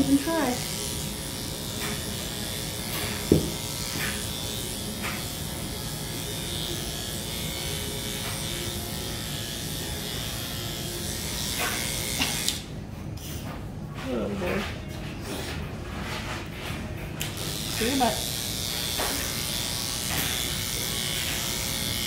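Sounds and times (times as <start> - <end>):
electric clippers running: 0.0 - 12.7, 17.2 - 22.0
sharp knock: 3.3 - 3.6.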